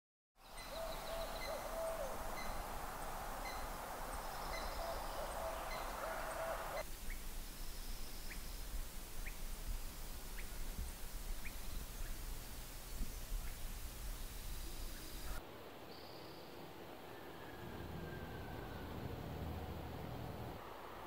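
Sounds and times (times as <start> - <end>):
short rising bird chirps: 0.4 - 6.8
low hooting tone: 0.7 - 6.8.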